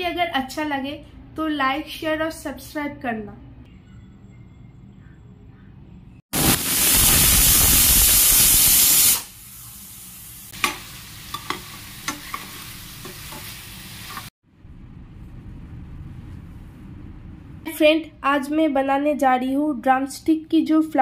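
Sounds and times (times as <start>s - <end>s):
food sizzling in pan: 6.4s - 14.3s
metal spoon clicking on pan: 10.6s - 13.5s.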